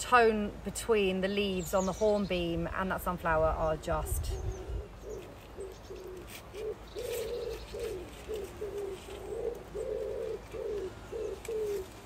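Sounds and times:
pigeon cooing: 4.4s - 12.0s.

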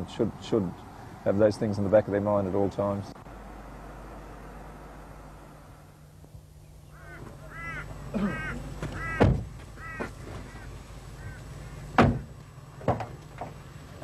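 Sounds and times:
vehicle doors thumping: 8.7s - 10.6s, 11.9s - 13.6s.

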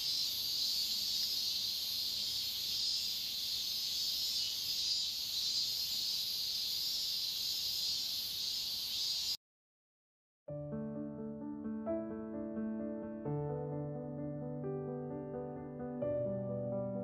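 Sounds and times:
insects chirping: 0.0s - 9.4s.

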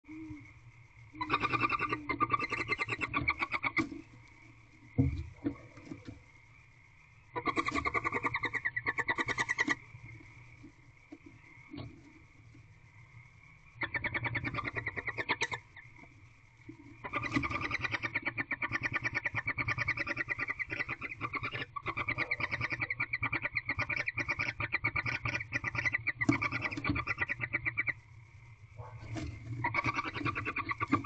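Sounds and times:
animal call trilling: 1.2s - 3.9s, 17.0s - 28.0s.

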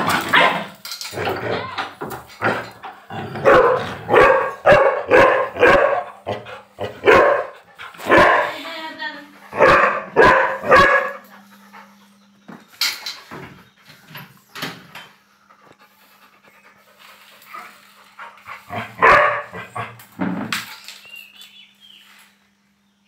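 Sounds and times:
dogs barking and yelping: 0.0s - 8.8s, 9.4s - 14.1s, 15.6s - 20.1s
steady low hum: 0.0s - 20.8s.

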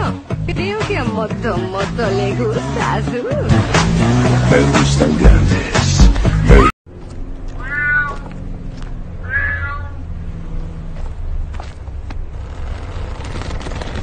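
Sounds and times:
loud music: 0.0s - 6.7s
cat meowing: 7.6s - 8.3s, 9.2s - 10.0s.

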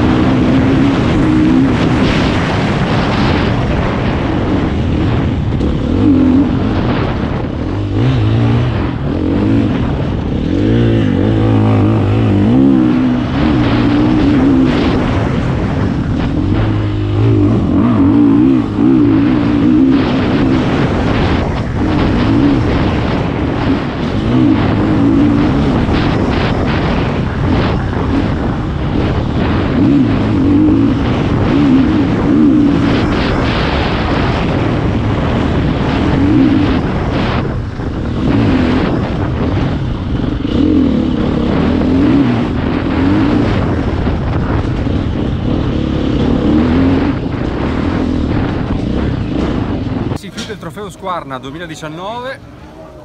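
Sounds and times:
motorbike engine revving: 0.0s - 53.0s.

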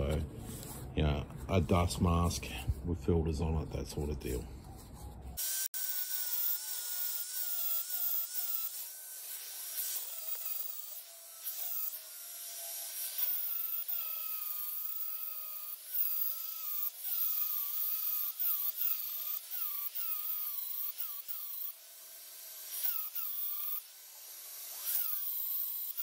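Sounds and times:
angle grinder grinding metal: 5.3s - 26.0s.

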